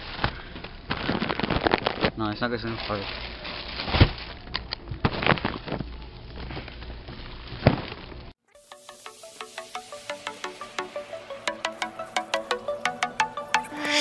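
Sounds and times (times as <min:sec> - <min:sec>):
plastic packs rustling: 0:00.0 - 0:08.3
music with chime-like plucked notes: 0:08.8 - 0:14.0.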